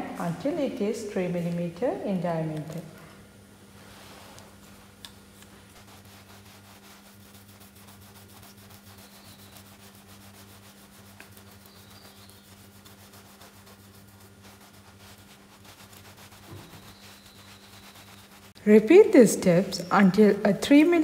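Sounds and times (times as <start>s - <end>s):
low steady hum: 0.0s - 21.0s
palm rubbing soil on glass: 3.8s - 18.6s.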